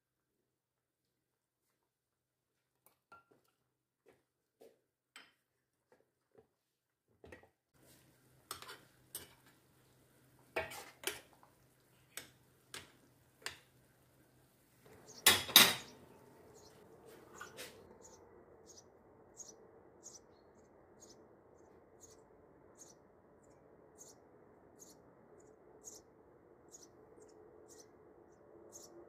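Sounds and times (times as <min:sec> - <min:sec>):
ladle clinking against pot: 0:15.2 - 0:16.0.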